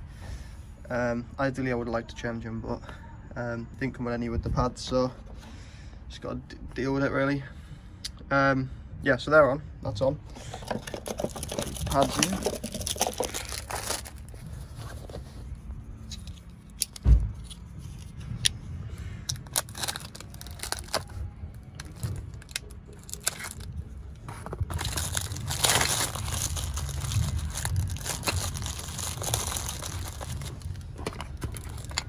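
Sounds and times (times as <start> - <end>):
plastic bag crinkling: 10.5 - 14.7, 19.4 - 23.9, 24.5 - 32.0.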